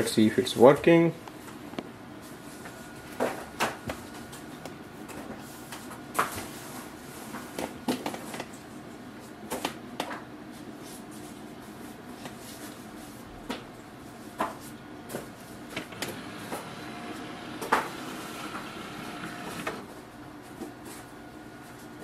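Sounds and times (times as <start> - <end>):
scanner humming: 15.6 - 20.4.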